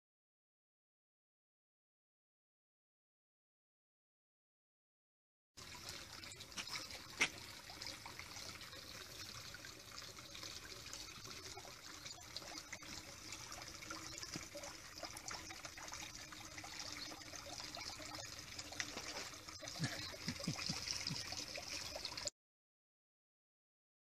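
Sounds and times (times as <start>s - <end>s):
water trickling into a pond: 5.6s - 22.3s.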